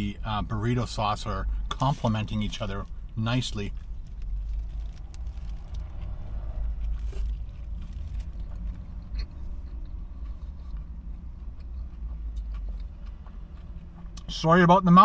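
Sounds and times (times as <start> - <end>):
steady low rumble: 0.0 - 15.0
man chewing food: 2.8 - 14.3.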